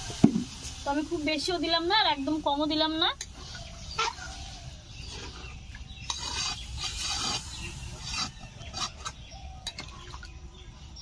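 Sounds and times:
spatula stirring curry: 5.0s - 9.3s
spatula scraping metal pan: 5.1s - 9.2s.

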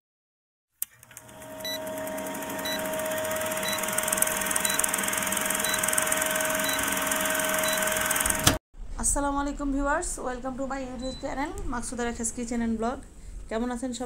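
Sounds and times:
film projector whirring and rattle: 0.8s - 8.6s.

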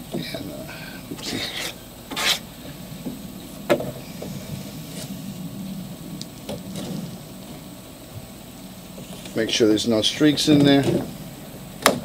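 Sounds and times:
putty knife scraping compound: 1.2s - 2.5s.

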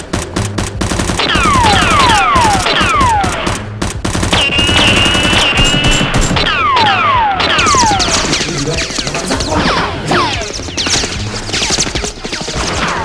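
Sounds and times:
rapid automatic gunfire: 0.0s - 13.0s.

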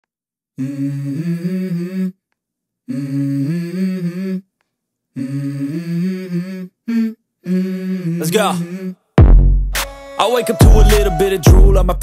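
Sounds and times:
person humming melody: 0.6s - 2.2s, 2.9s - 4.5s, 5.2s - 9.0s, 10.2s - 12.0s.

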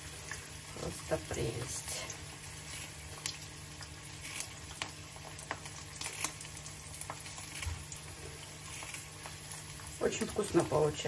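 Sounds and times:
eggs sizzling in a pan: 0.0s - 11.0s.

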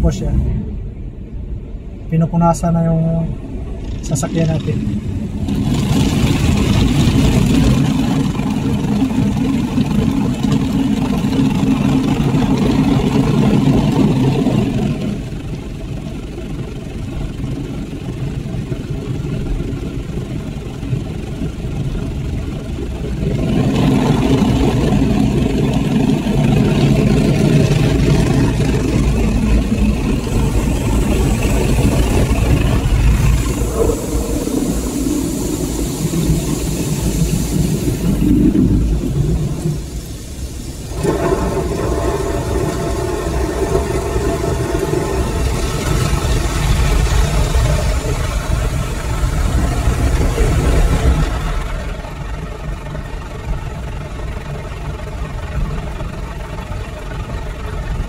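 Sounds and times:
water streaming over windscreen: 3.4s - 58.0s.

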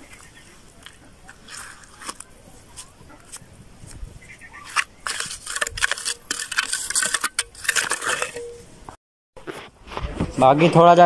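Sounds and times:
trowel scraping wet cement: 0.0s - 4.0s, 4.6s - 8.6s.

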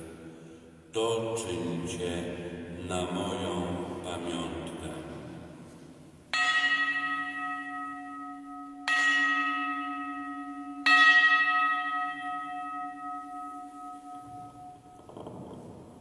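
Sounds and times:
altar bell ringing: 6.3s - 15.1s.

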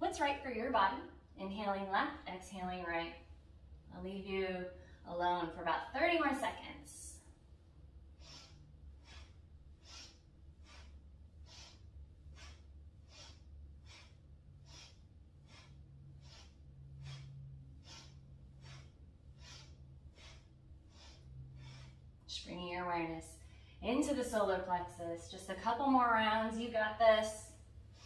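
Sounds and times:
woman breathing rhythmically: 4.7s - 5.1s, 7.0s - 22.5s, 23.1s - 25.4s, 27.2s - 28.0s.

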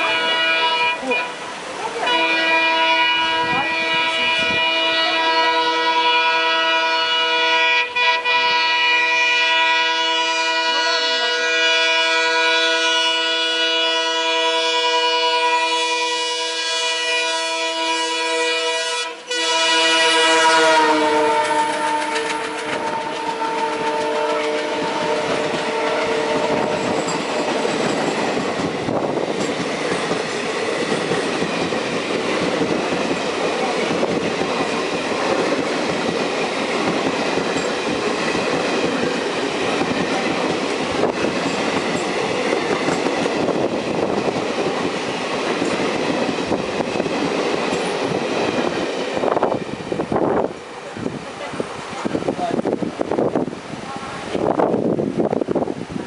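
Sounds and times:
locomotive horn blaring: 0.0s - 1.4s, 2.0s - 27.6s
train wheels roaring and clattering: 9.2s - 56.0s.

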